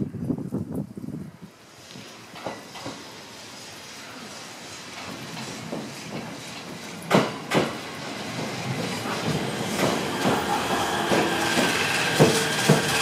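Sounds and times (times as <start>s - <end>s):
electric train braking: 1.9s - 13.0s
wheels clacking over rail joint: 2.3s - 3.1s, 4.9s - 13.0s.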